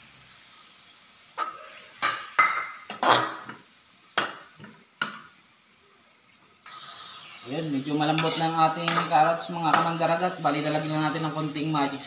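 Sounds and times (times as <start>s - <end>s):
metal spatula scraping wok: 7.9s - 9.9s.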